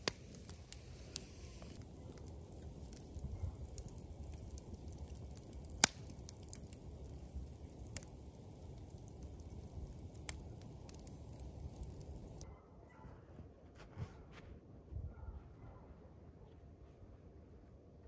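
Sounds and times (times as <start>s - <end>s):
campfire crackling and popping: 0.0s - 12.4s.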